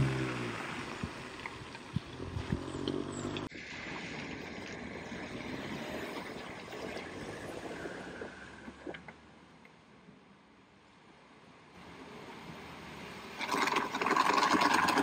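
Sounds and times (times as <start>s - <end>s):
vehicle engine running: 0.0s - 3.5s
water splashing: 13.3s - 15.0s.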